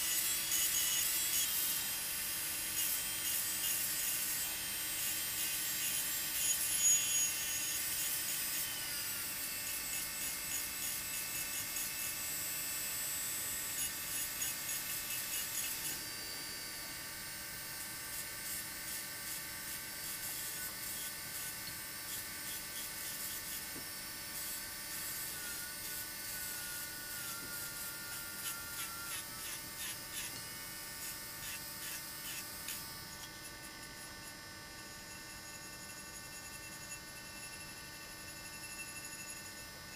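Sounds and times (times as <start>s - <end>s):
rotary engraving tool whining: 0.0s - 39.9s
abrasive point scratching glass: 5.6s - 9.0s, 20.0s - 34.4s, 35.1s - 39.8s.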